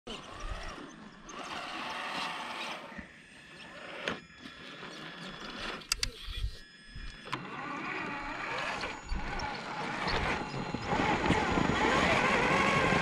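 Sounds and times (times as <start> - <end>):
toy car motor whining: 0.1 - 13.0
sharp clicks: 5.8 - 6.4.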